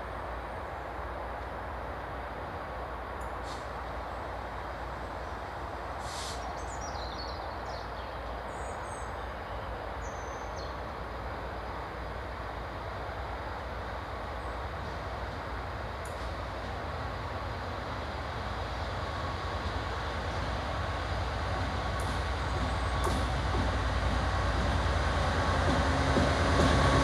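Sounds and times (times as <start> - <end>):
diesel locomotive rumbling: 0.0 - 27.0
birds chirping: 19.2 - 27.0.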